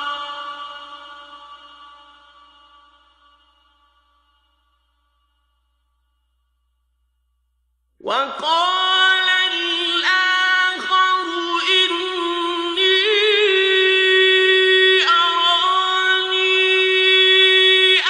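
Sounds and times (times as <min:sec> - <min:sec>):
person chanting recitation: 0:00.0 - 0:02.1, 0:08.0 - 0:18.0.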